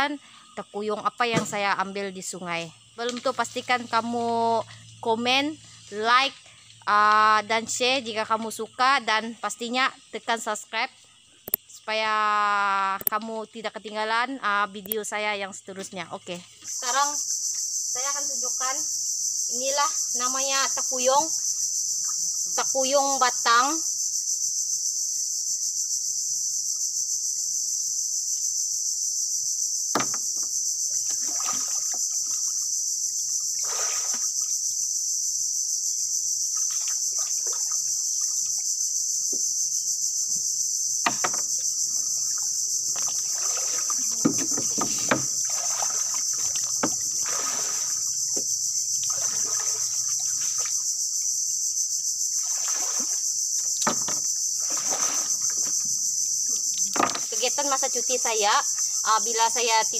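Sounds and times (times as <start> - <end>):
high-pitched insect drone: 0.0 - 59.9
knocks on a boat: 29.9 - 30.5, 41.0 - 41.5, 44.2 - 45.4, 53.8 - 54.3
water splashing: 31.0 - 32.6, 33.5 - 34.4, 36.5 - 38.6, 41.9 - 48.4, 49.0 - 50.9, 52.4 - 53.2, 54.0 - 55.8.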